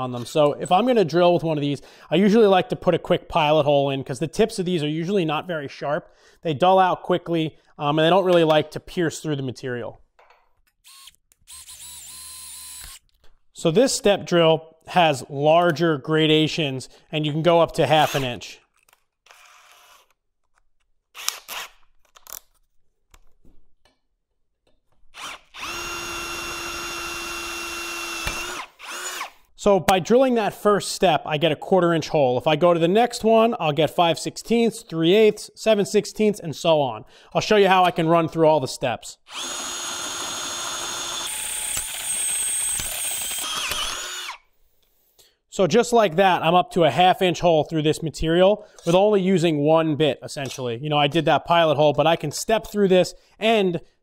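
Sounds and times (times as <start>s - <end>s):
drill cutting into steel: 10.8s - 13.1s, 19.3s - 20.2s, 21.2s - 21.8s, 25.2s - 29.5s, 39.3s - 44.5s.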